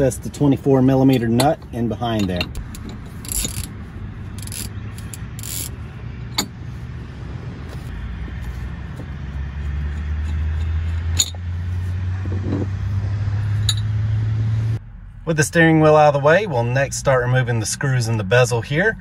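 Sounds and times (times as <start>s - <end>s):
low engine hum: 0.0s - 19.0s.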